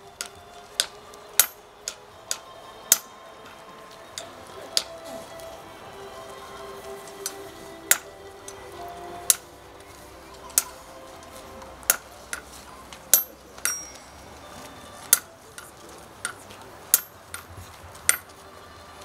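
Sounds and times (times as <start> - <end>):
metal clinking on metal: 0.2 - 3.2, 13.1 - 14.3, 15.0 - 18.3.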